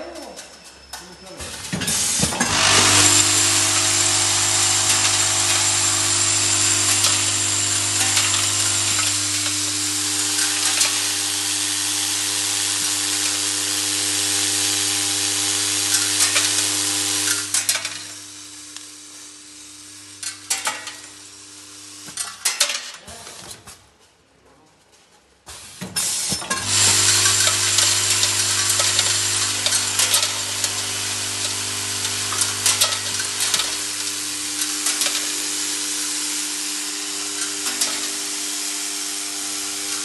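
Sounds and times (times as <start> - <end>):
low machine hum: 2.4 - 10.6
screws rattling in a bowl feeder: 26.5 - 33.9.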